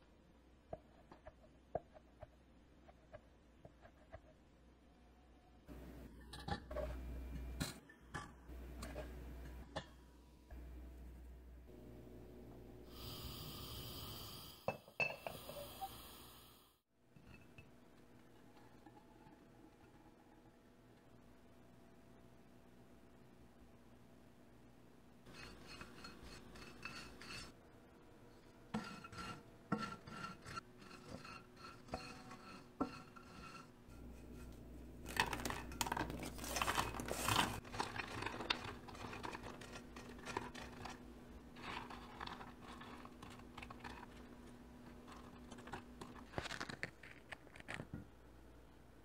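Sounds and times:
bread cubes scraping in pan: 0:25.2 - 0:27.6, 0:28.8 - 0:47.7.

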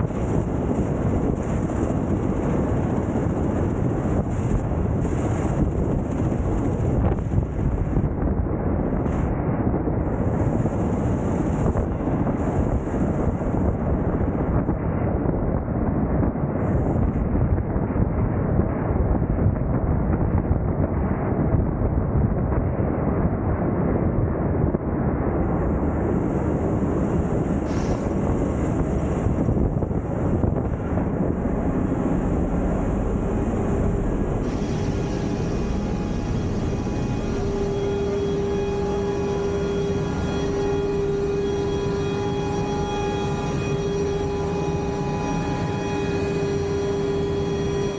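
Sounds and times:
aircraft engines droning: 0:00.0 - 0:15.3, 0:25.1 - 0:47.9
steady hum tone: 0:00.0 - 0:19.5, 0:20.7 - 0:47.9
wind buffeting microphone: 0:00.0 - 0:47.9.

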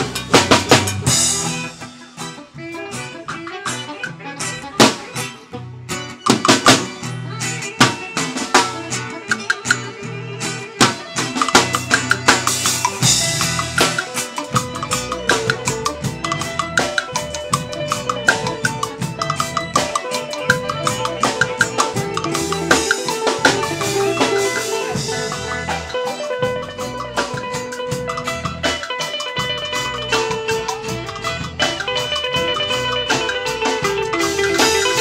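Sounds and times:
drum kit beat: 0:00.0 - 0:35.0
hand drums: 0:00.0 - 0:35.0
live band playing: 0:00.0 - 0:35.0.

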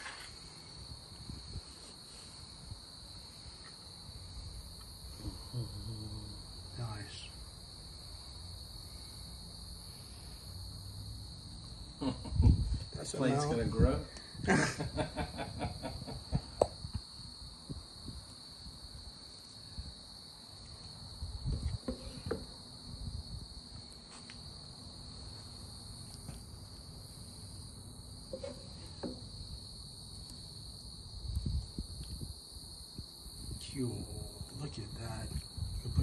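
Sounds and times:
insect chorus: 0:00.0 - 0:36.0.

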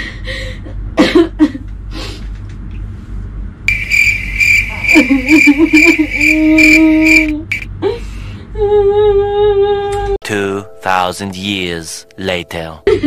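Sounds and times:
cricket trill: 0:03.7 - 0:07.7
person humming: 0:06.0 - 0:07.5.

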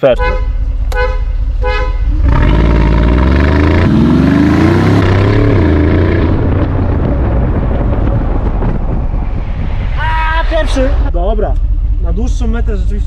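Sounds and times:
wind and road noise: 0:00.0 - 0:13.0
car engine accelerating hard: 0:00.8 - 0:09.6.

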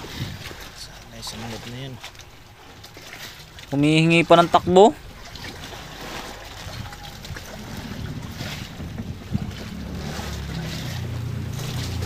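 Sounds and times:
wind on microphone: 0:00.0 - 0:00.7, 0:04.5 - 0:12.0
low steady hum: 0:00.0 - 0:12.0
sea washing around boat: 0:00.0 - 0:12.0.

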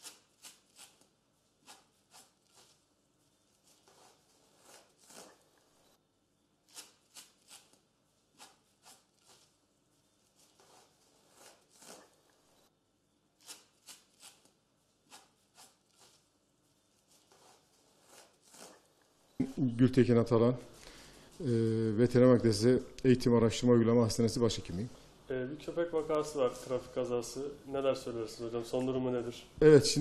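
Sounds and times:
adhesive tape rustling and ripping: 0:00.0 - 0:05.5, 0:06.6 - 0:12.4, 0:13.4 - 0:16.3, 0:16.9 - 0:18.9.

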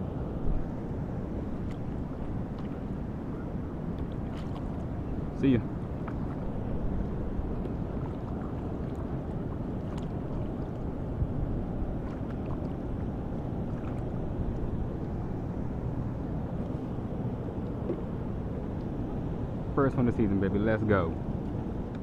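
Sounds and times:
wind on microphone: 0:00.0 - 0:22.0.

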